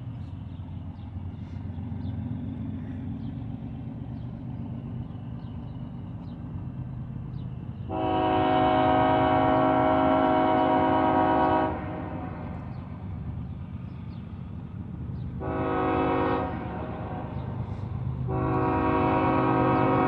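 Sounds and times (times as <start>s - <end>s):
diesel train rumble: 0.0s - 20.0s
train air horn chord: 7.9s - 12.6s, 15.4s - 20.0s.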